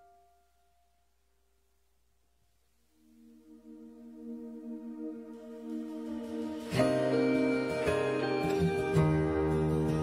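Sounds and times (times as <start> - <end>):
band playing sustained chords: 3.1 - 10.0.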